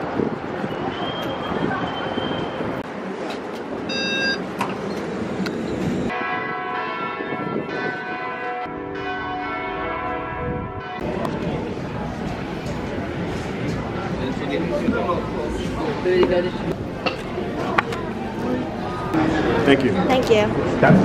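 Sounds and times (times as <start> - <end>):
street traffic noise: 0.0 - 21.0
bells ringing: 6.1 - 11.2.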